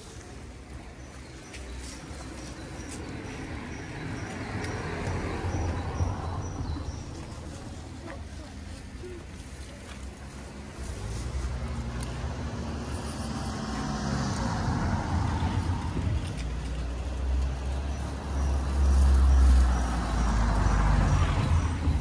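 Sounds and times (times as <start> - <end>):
vehicle passing with low rumble: 10.5 - 22.0.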